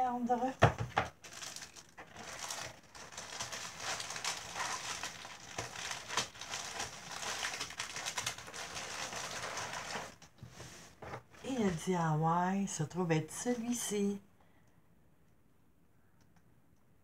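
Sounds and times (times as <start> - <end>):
plastic packaging crinkling: 1.1 - 10.4.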